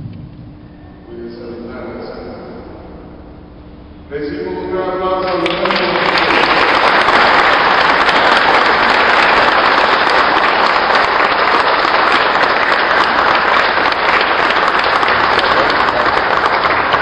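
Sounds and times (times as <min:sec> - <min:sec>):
congregation applauding: 0:04.7 - 0:17.0.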